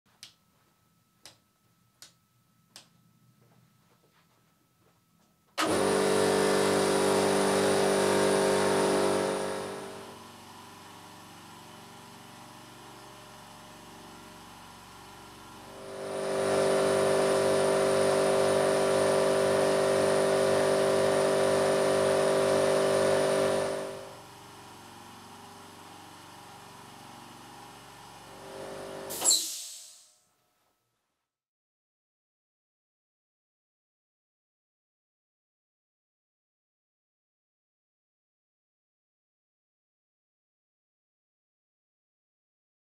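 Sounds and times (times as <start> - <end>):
loud air compressor running: 5.6 - 30.1
quiet air compressor running: 5.6 - 30.2.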